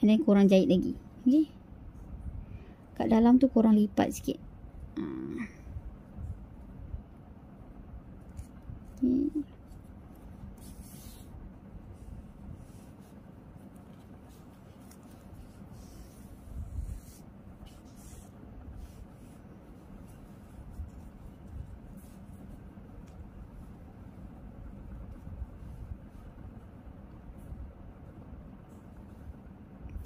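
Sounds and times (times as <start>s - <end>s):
low steady hum: 0.0s - 30.0s
needle and thread pulled through yarn: 8.2s - 28.0s.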